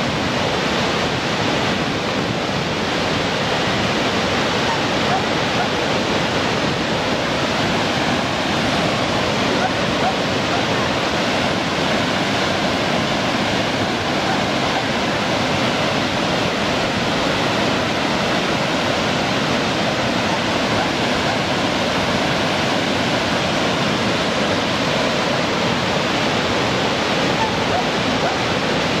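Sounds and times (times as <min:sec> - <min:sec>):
stream rushing over boulders: 0:00.0 - 0:29.0
waterfall roaring: 0:00.0 - 0:29.0.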